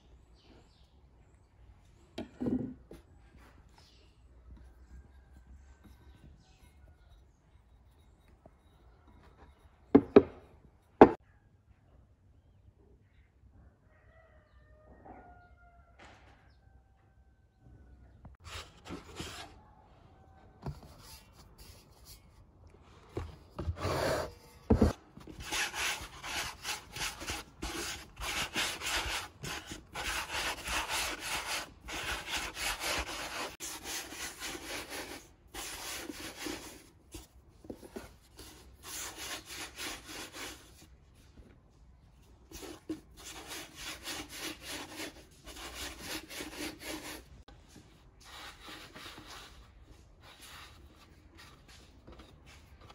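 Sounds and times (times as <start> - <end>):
palms rolling dough on wood: 23.0 - 41.8.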